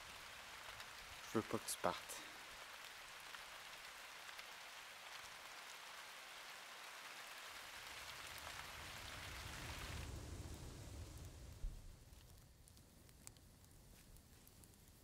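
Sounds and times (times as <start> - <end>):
light rain falling: 0.0 - 15.0.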